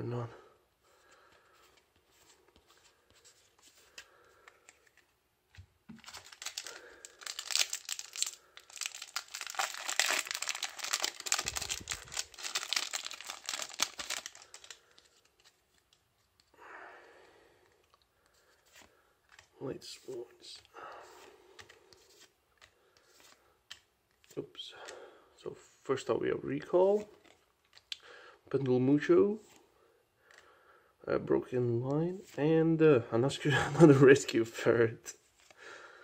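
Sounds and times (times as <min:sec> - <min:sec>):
foil wrapper tearing and crinkling: 0:06.0 - 0:15.0.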